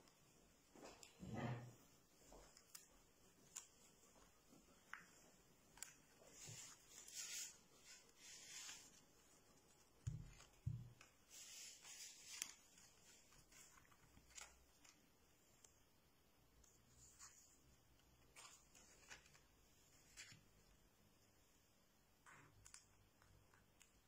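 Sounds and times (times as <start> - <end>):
paper rustling: 2.1 - 15.9, 16.6 - 20.8.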